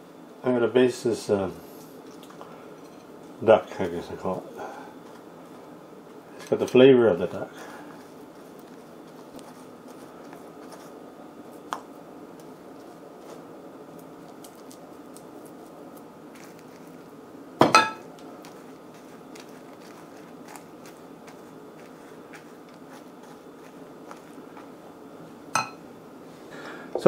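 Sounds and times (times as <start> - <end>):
steady low hum: 0.0 - 27.0
dishware clinking and ringing: 17.6 - 18.0, 25.6 - 25.8.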